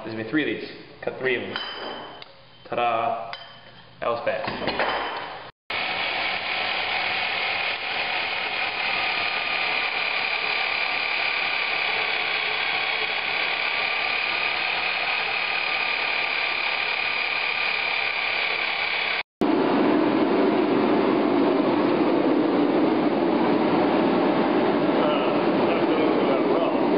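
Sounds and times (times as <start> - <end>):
hole saw cutting steel tube: 5.7 - 19.2.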